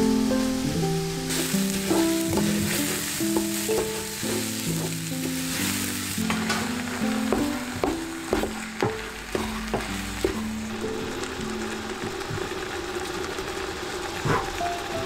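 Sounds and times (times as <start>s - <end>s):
background music: 0.0s - 15.0s
meat sizzling in a pot: 0.0s - 15.0s
wooden spoon scraping pot: 1.3s - 10.5s.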